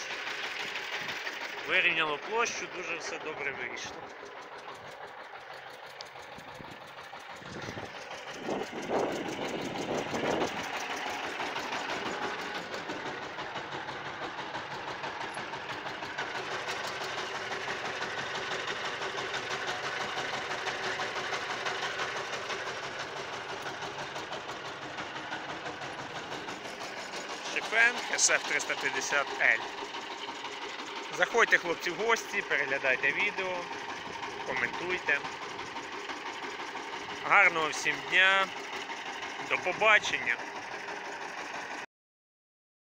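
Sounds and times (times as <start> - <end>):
diesel engine idling: 0.0 - 41.9.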